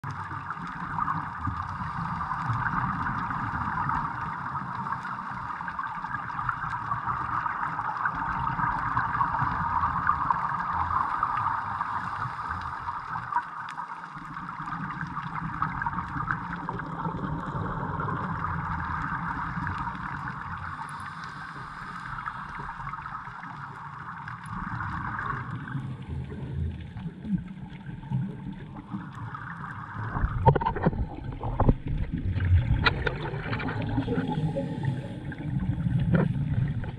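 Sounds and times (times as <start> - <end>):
bubbling: 0.0 - 36.9
muffled underwater hiss and rumble: 0.0 - 36.9
knocking underwater: 30.1 - 34.5.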